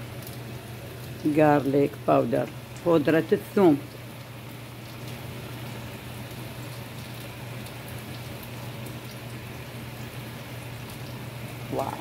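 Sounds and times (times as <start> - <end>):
vegetables sizzling in a pan: 0.0 - 12.0
light crackles: 3.8 - 11.5.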